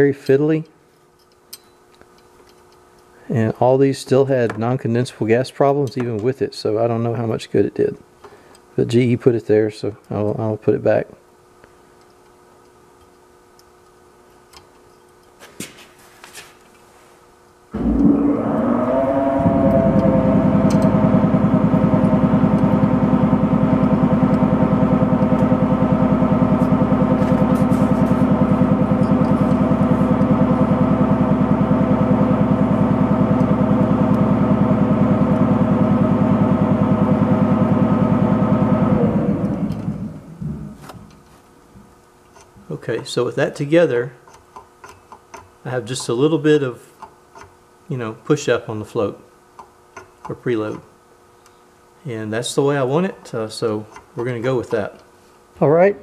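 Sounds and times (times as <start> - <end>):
motor humming: 17.7 - 41.8.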